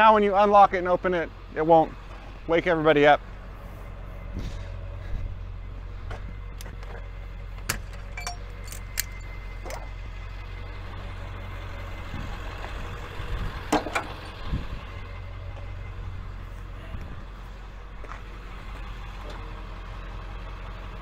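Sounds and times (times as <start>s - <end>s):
truck engine idling: 0.0s - 21.0s
metallic clinks of tow gear: 7.9s - 9.9s.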